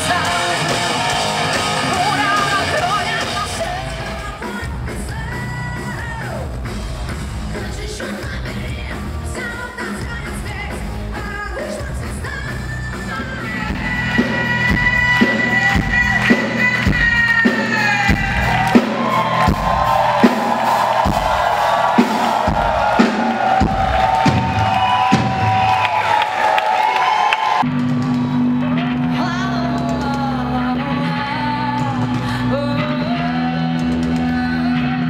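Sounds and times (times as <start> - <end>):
rock band playing: 0.0 - 35.0
woman singing: 1.9 - 6.4, 7.5 - 18.6, 29.0 - 35.0.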